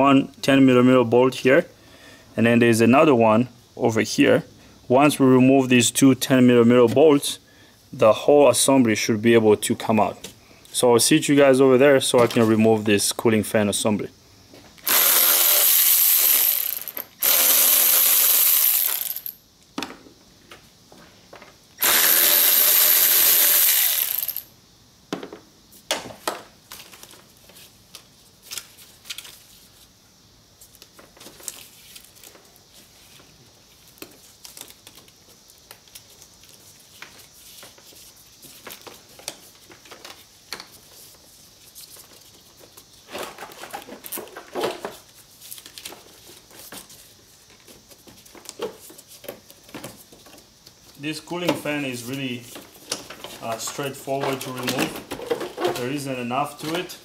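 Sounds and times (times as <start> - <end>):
power ratchet running: 14.8 - 19.4, 21.8 - 24.5
tools and parts clicking: 14.8 - 19.4, 21.8 - 24.5.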